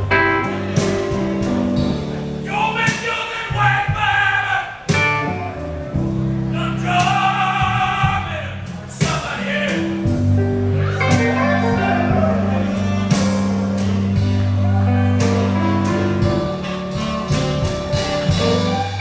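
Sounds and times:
low bass line: 0:00.0 - 0:02.8, 0:04.9 - 0:19.0
man singing: 0:02.4 - 0:04.9, 0:06.5 - 0:10.1, 0:10.9 - 0:13.2
electric guitar: 0:04.9 - 0:06.5, 0:09.8 - 0:19.0.

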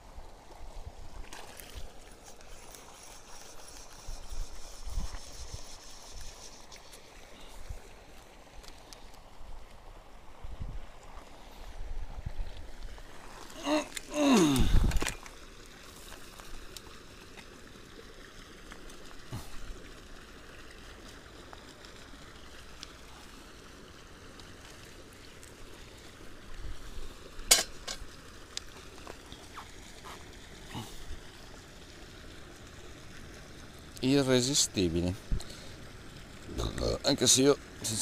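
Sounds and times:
low hiss: 0:02.0 - 0:12.0
fishing gear handling: 0:13.3 - 0:15.4.

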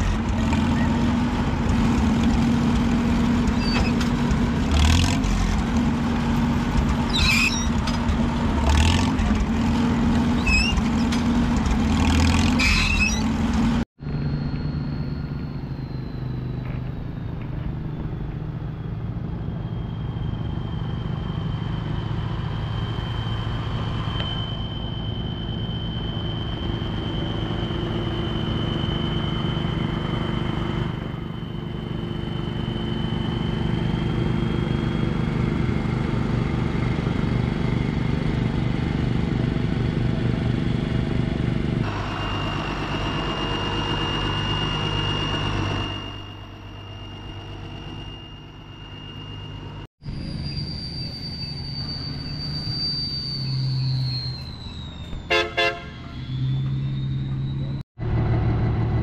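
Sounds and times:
tractor engines running: 0:00.0 - 0:59.0
thin high whine: 0:12.6 - 0:35.1, 0:41.8 - 0:57.8.

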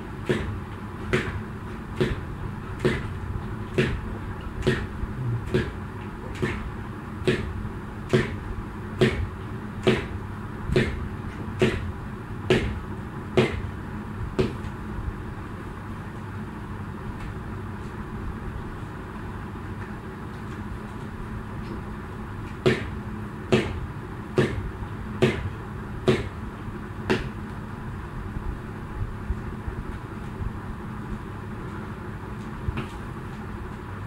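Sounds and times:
jump rope smacking floor: 0:02.8 - 0:04.0, 0:04.6 - 0:04.9, 0:08.1 - 0:08.4, 0:10.7 - 0:11.0
low hum: 0:05.0 - 0:05.6.

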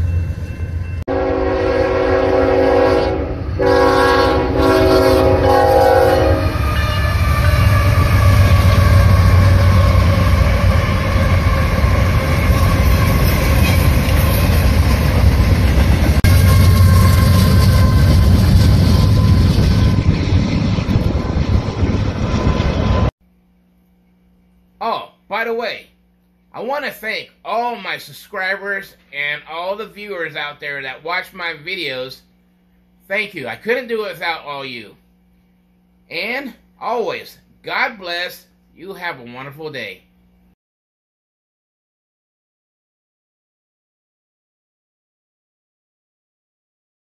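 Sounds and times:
train rumbling past: 0:00.0 - 0:23.1
locomotive air horn blasts: 0:01.1 - 0:13.5, 0:16.3 - 0:20.0.

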